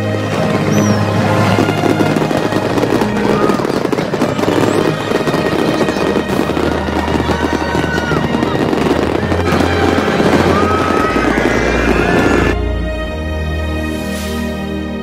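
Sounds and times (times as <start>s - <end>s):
fireworks crackling and popping: 0.0s - 12.6s
background music: 0.0s - 15.0s
firework whistles: 0.6s - 12.6s.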